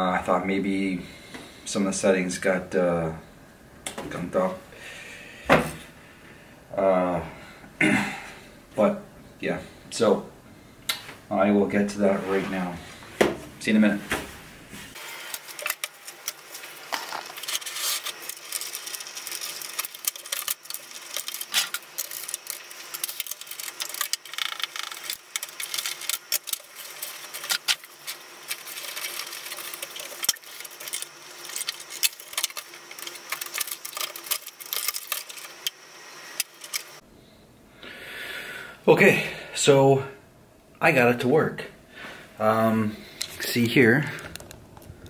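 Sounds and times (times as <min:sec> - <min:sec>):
computer parts clicking and rattling: 0:15.3 - 0:37.0.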